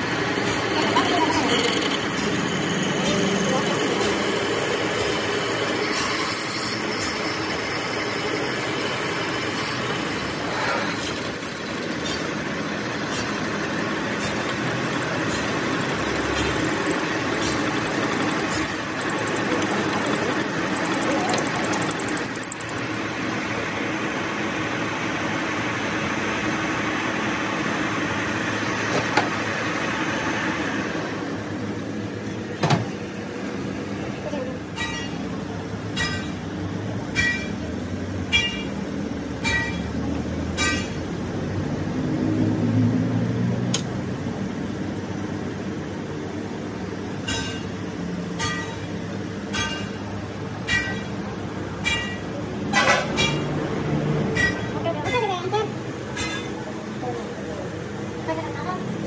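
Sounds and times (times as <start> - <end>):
metal lathe running: 0.0 - 24.8
drill cutting into steel: 0.4 - 12.2, 14.1 - 23.2.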